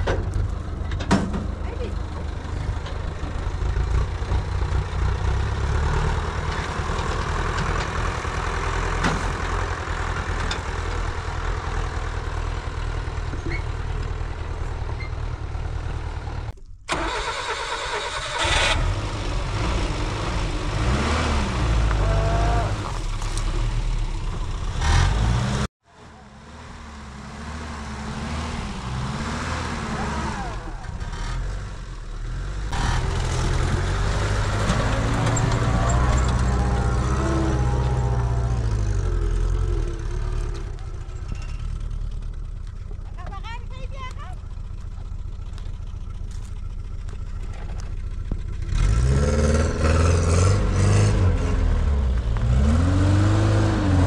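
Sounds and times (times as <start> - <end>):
vehicle engine running: 19.0 - 50.5.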